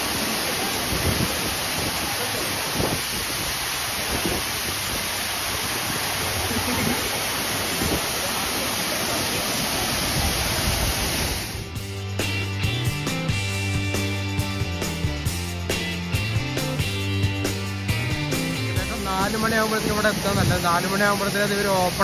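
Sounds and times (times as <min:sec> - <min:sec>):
waterfall rushing into pool: 0:00.0 - 0:11.8, 0:18.3 - 0:22.0.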